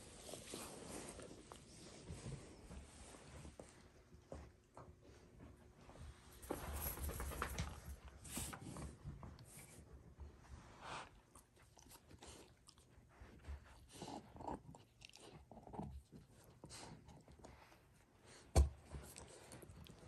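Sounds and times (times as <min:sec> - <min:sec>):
puppy gnawing a bone: 0:11.2 - 0:17.8.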